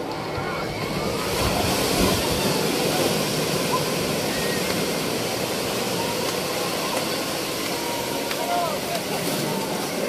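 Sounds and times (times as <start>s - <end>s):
sea waves breaking: 0.0s - 10.0s.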